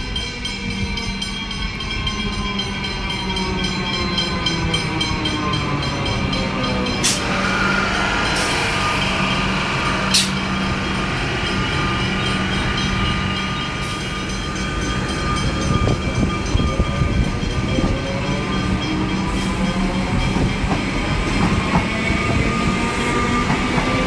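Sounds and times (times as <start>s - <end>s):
electric train passing: 0.0s - 24.0s
whine sliding in pitch: 6.9s - 20.2s.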